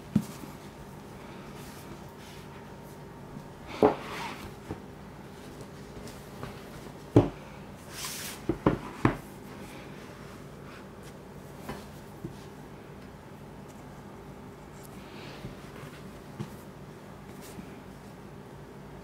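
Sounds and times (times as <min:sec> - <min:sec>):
books knocking on tabletop: 0:07.1 - 0:07.4, 0:08.5 - 0:09.3
book covers sliding and rubbing: 0:07.9 - 0:09.1.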